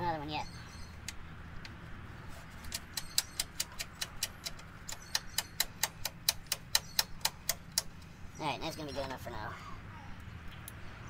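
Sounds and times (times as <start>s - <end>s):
rapid ratcheting clicks: 2.7s - 8.0s.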